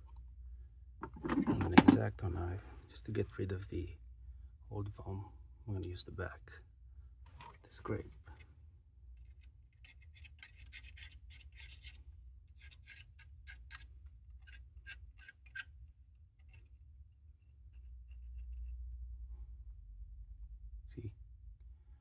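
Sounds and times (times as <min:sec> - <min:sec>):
knife scraping foam: 0:09.8 - 0:12.0, 0:12.6 - 0:15.7.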